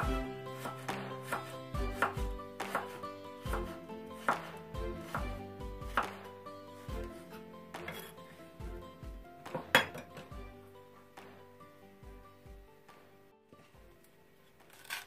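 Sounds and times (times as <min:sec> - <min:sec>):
knife slicing on cutting board: 0:00.0 - 0:05.2.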